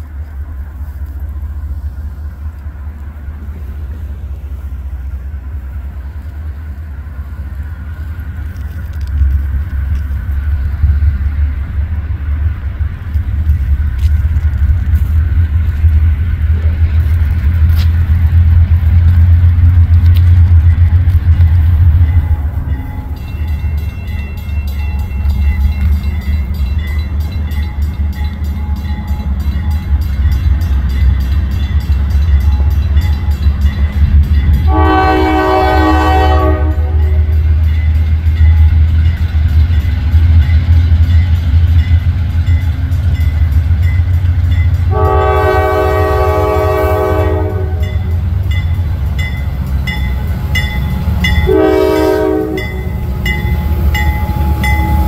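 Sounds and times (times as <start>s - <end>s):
diesel locomotive engine rumble: 0.0s - 55.0s
locomotive bell dinging: 20.5s - 55.0s
train air horn blasts: 34.5s - 37.4s, 44.9s - 48.2s, 51.3s - 53.0s.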